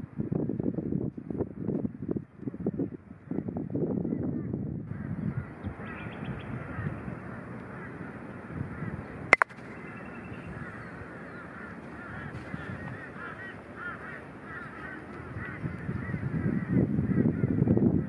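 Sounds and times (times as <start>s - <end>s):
birds chattering: 5.1s - 17.5s
balls clacking together: 9.3s - 9.8s
croquet mallet hitting ball: 9.3s - 9.8s.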